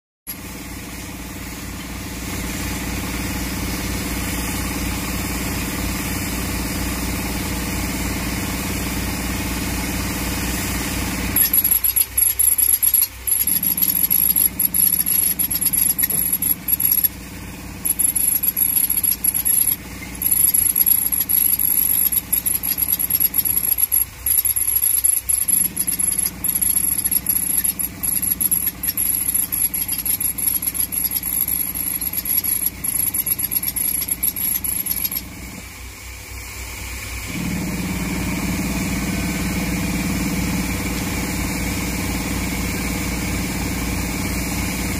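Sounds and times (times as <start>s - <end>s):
air compressor running: 0.3s - 35.9s
high steady whistle: 11.4s - 17.1s, 17.9s - 35.2s
pneumatic rock drill hammering: 11.4s - 17.2s, 17.8s - 35.5s.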